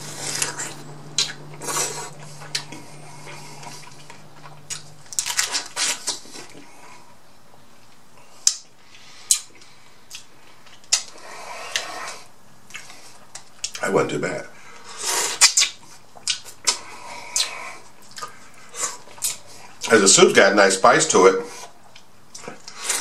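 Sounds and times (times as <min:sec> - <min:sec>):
crab shells cracking: 0:04.7 - 0:06.2.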